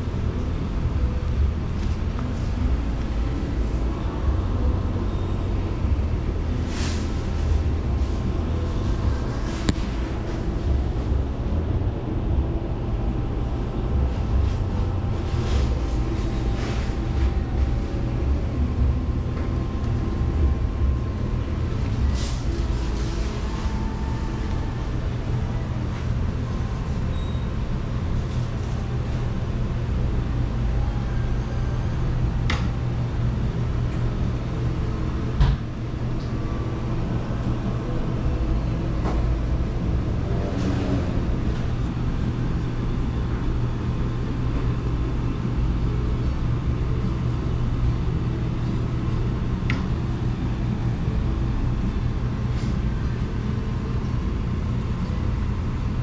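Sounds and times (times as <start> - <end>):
low machine rumble and hum: 0.0 - 56.0.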